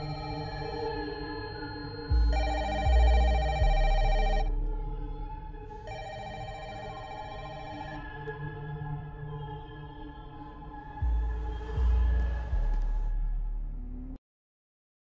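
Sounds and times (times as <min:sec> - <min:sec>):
phone ringtone: 0:00.0 - 0:04.5, 0:05.9 - 0:08.0
background music: 0:00.0 - 0:14.2.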